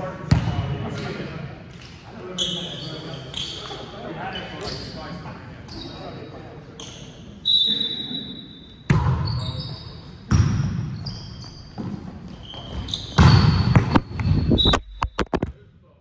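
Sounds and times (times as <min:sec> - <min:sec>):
sneakers squeaking on hardwood floor: 0:02.3 - 0:05.0, 0:05.7 - 0:06.2, 0:06.8 - 0:15.2
volleyball hits: 0:08.9 - 0:09.3, 0:12.6 - 0:14.8.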